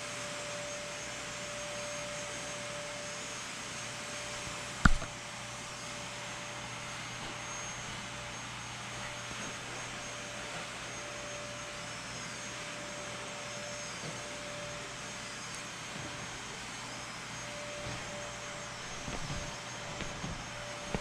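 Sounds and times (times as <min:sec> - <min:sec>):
faint steady whine: 0:00.0 - 0:21.0
sharp knock: 0:04.9 - 0:05.1.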